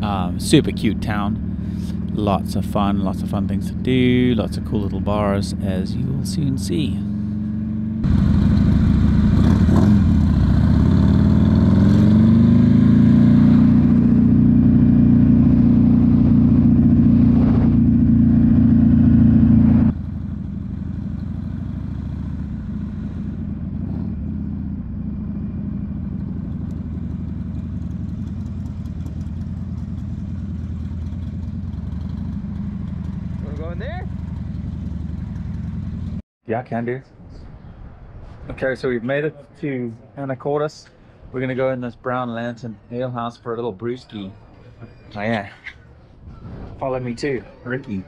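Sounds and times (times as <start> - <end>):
motorcycle engine accelerating: 0.0 - 36.2.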